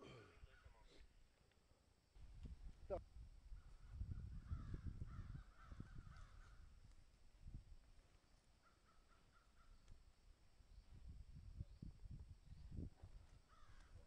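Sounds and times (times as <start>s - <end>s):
faint bird calling: 3.5s - 6.8s, 8.2s - 10.1s, 13.4s - 14.0s.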